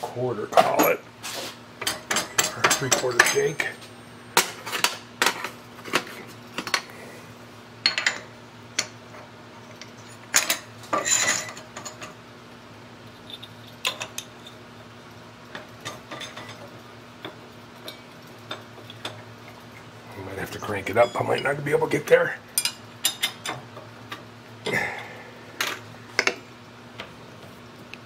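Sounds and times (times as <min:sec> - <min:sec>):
metal tooling clinking: 0:01.8 - 0:03.8, 0:20.6 - 0:21.6.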